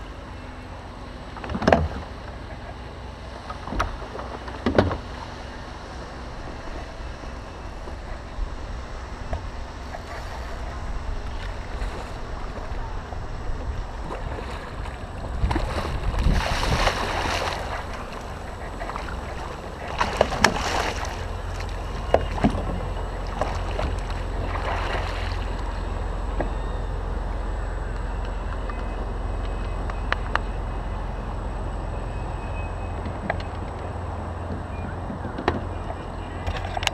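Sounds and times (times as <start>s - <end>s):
steady low rumble: 0.0s - 36.9s
clicks and knocks against hull: 1.3s - 2.1s, 13.6s - 25.7s, 34.5s - 36.9s
water splashing beside a kayak: 3.5s - 26.4s.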